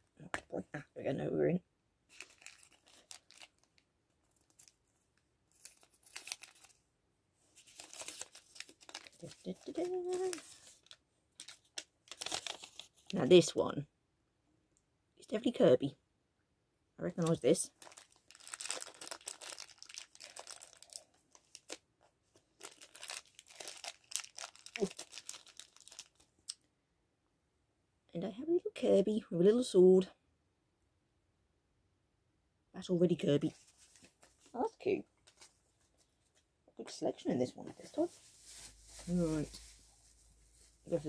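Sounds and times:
plastic bag crinkling: 2.1s - 4.8s, 5.5s - 6.8s, 7.6s - 13.3s, 17.2s - 21.8s, 22.5s - 26.3s, 37.8s - 41.0s.

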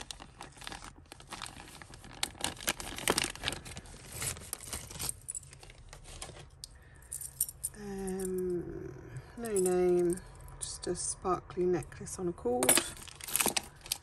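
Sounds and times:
plastic bag crinkling: 0.0s - 6.6s, 12.7s - 14.0s
metal beads clinking: 6.9s - 8.6s, 9.4s - 10.5s, 12.6s - 14.0s.

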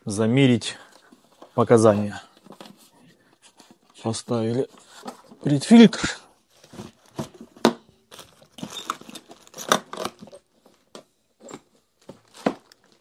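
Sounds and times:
plastic bag crinkling: 8.1s - 10.4s.

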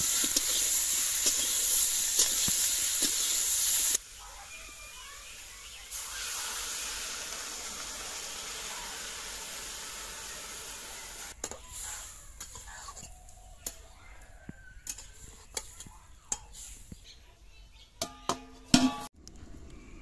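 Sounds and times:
water sizzling in hot oil: 0.0s - 12.6s.

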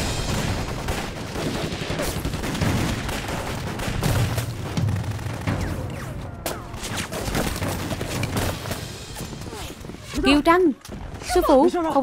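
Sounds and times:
rapid gunfire: 0.0s - 9.9s.

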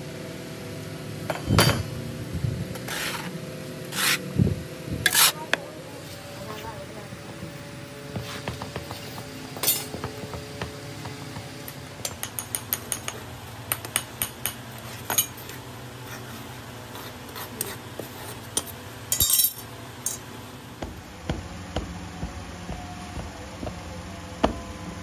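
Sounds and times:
steel bar clinking on metal rim: 19.1s - 20.2s
low hum: 20.8s - 25.0s.

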